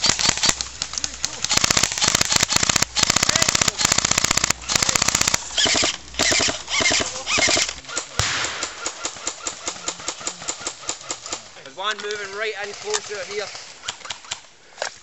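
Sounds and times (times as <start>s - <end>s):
airsoft rifle firing full auto: 0.0s - 11.3s.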